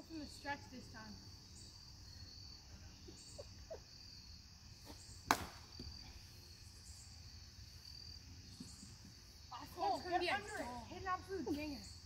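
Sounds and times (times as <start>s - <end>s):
insects chorus: 0.0s - 12.0s
bat hitting baseball: 5.2s - 5.9s.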